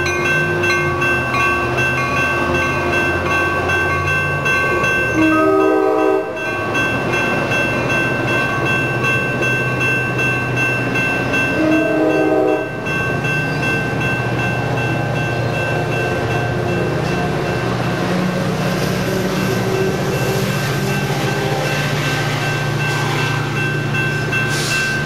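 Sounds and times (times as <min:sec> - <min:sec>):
crossing bell ringing: 0:00.0 - 0:25.0
train cars rolling past: 0:00.0 - 0:25.0
short train horn blasts: 0:05.2 - 0:06.4, 0:11.6 - 0:12.7.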